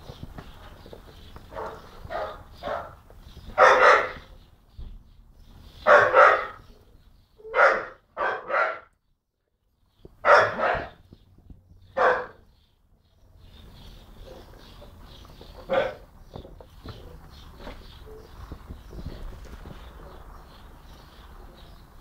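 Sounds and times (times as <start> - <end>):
dog barking: 1.5 - 3.0, 3.6 - 4.3, 5.8 - 6.7, 7.4 - 8.9, 10.2 - 11.0, 12.0 - 12.4, 15.7 - 16.0.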